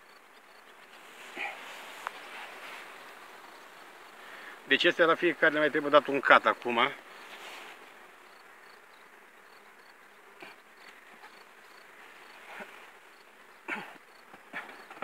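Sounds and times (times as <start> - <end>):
bees buzzing: 0.0 - 15.0.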